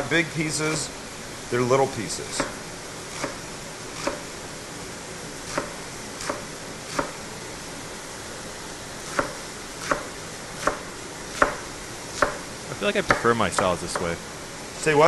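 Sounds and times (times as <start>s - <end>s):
knife chopping on wooden board: 4.0s - 4.2s, 5.5s - 7.2s, 9.1s - 12.4s.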